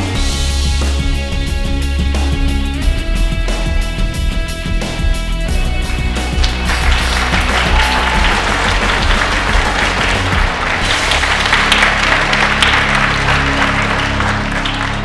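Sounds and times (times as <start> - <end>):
background music with low notes: 0.0 - 15.0
audience applauding: 6.3 - 15.0.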